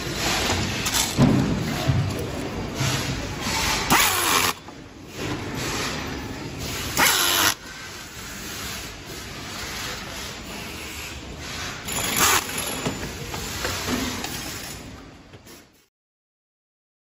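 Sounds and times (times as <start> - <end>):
workshop background noise: 0.0 - 15.9
power screwdriver driving screw: 3.8 - 4.6, 6.9 - 7.6, 12.0 - 12.7.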